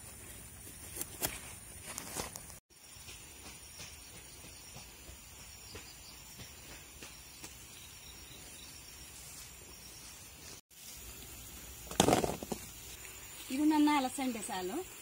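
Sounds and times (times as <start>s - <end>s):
faint ticks and rustles: 12.8s - 14.4s.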